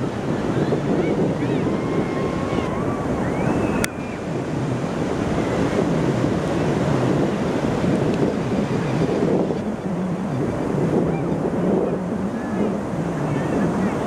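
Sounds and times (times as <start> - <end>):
ocean surf: 0.0 - 14.0
wind buffeting microphone: 0.0 - 14.0.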